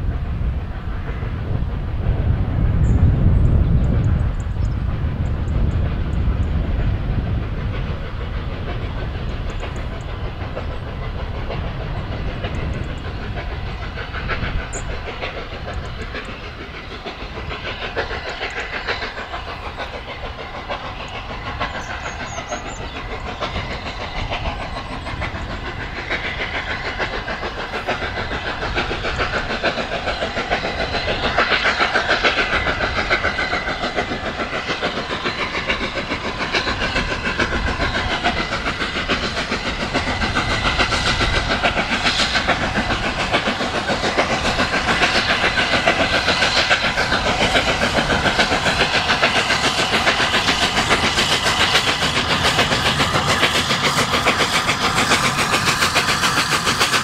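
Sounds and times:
steam locomotive exhaust beating: 0.0s - 57.0s.

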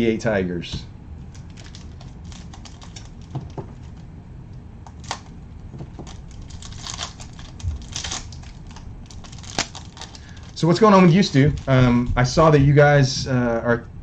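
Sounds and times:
low steady hum: 0.0s - 14.0s
card pack wrapper crinkling: 1.3s - 4.0s, 4.9s - 5.3s, 5.9s - 13.0s
cards being handled: 4.9s - 13.3s.

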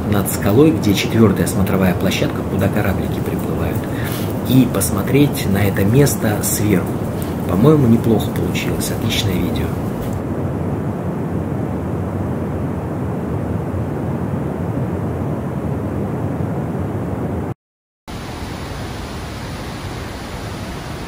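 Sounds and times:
waterfall roaring: 0.0s - 10.2s, 18.1s - 21.0s.

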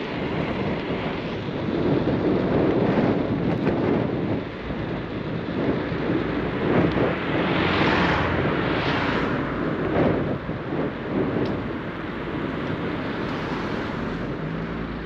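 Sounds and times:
road traffic: 0.0s - 15.0s
wind rushing over microphone: 0.0s - 15.0s
car passing: 5.9s - 15.0s.

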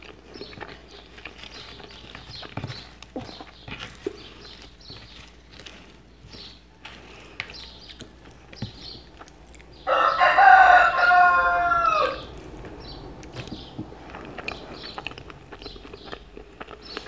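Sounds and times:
chewing: 0.0s - 17.0s
rooster crowing: 9.8s - 12.4s.

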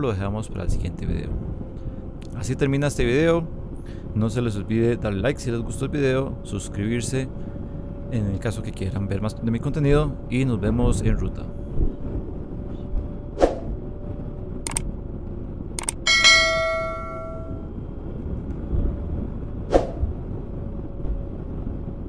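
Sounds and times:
steady low rumble: 0.0s - 22.0s
sharp clicks: 14.7s - 14.9s, 15.8s - 16.0s
bell-like metallic ring: 16.1s - 17.7s.

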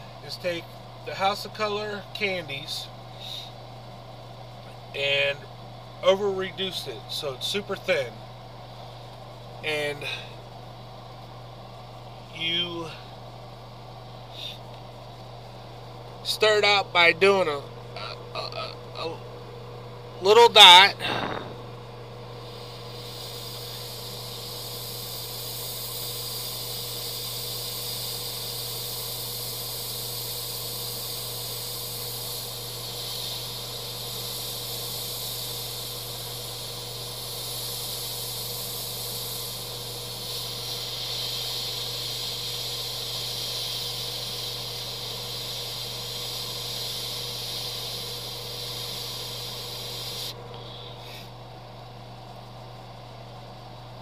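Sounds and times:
steady low hum: 0.0s - 54.0s
airbrush hissing: 8.7s - 10.6s, 14.2s - 15.3s, 20.3s - 51.4s.

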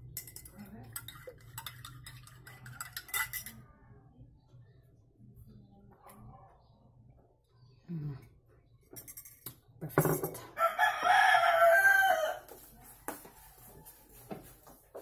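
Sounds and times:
rooster crowing: 10.6s - 12.6s.

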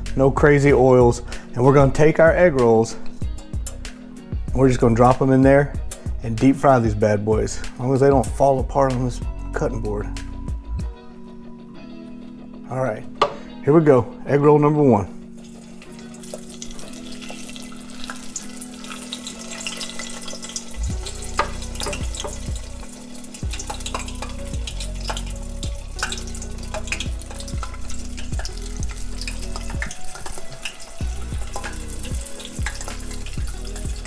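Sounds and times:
background music: 0.0s - 34.0s
oil bubbling and sizzling: 15.2s - 34.0s.

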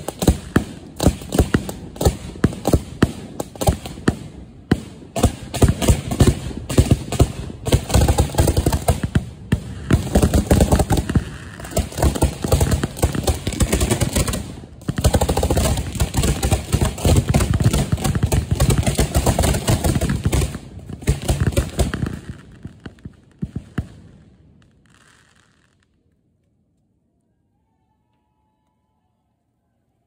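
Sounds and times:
fireworks booming and cracking: 0.0s - 25.8s.

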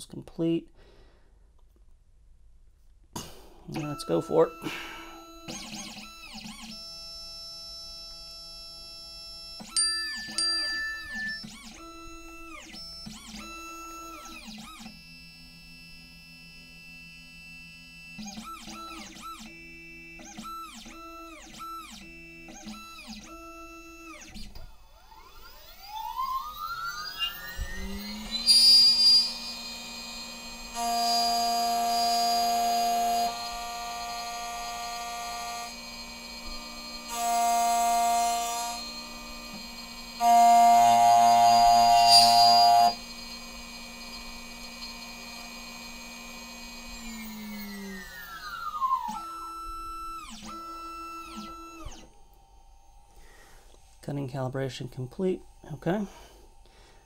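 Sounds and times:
stepper motors whining: 3.7s - 54.0s
cutter spindle whining: 3.7s - 57.0s
cutter cutting into key blank: 9.6s - 15.0s.

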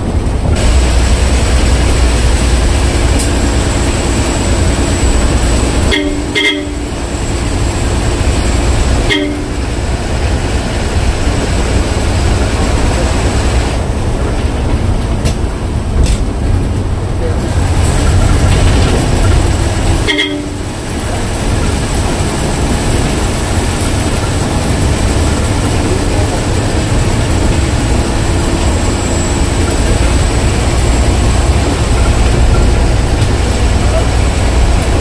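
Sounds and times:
vehicle rumble and wind noise: 0.0s - 35.0s
short horn toots: 5.8s - 7.0s, 9.0s - 9.6s, 20.0s - 20.6s.

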